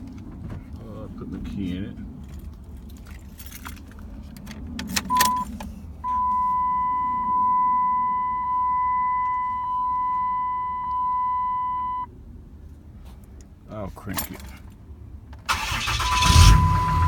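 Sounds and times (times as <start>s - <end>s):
keys rattling in ignition: 2.1s - 12.1s, 14.0s - 14.8s
dashboard warning chime: 5.1s - 12.1s, 16.0s - 17.0s
short beep: 5.1s - 12.1s.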